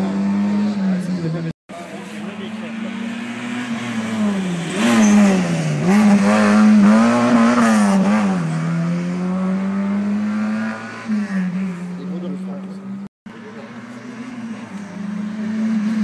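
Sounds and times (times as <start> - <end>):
rally car engine at full throttle: 0.0 - 16.0.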